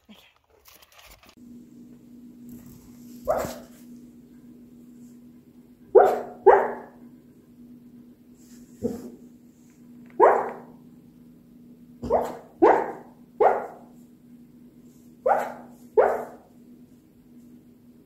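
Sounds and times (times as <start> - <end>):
dog barking in sleep: 3.2 - 3.8, 5.9 - 7.0, 8.8 - 9.3, 10.2 - 10.8, 12.0 - 14.0, 15.2 - 16.6.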